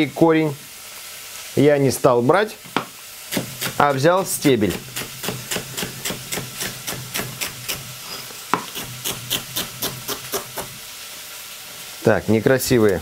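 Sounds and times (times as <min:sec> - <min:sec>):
knife chopping on plastic board: 0:02.8 - 0:03.8, 0:04.7 - 0:07.8, 0:08.5 - 0:10.8.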